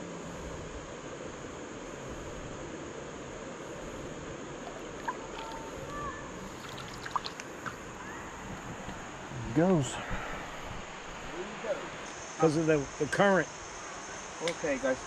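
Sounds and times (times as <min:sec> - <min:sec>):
river water rushing: 0:00.0 - 0:14.4
faint chirps and clicks: 0:05.0 - 0:05.7.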